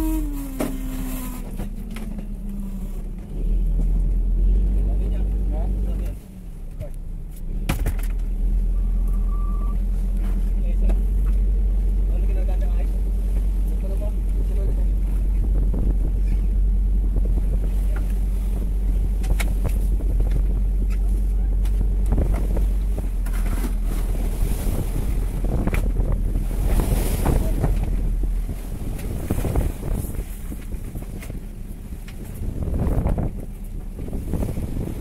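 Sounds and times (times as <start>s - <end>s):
boat engine low rumble: 0.0s - 35.0s
water noise: 0.0s - 35.0s
wind on microphone: 14.1s - 35.0s.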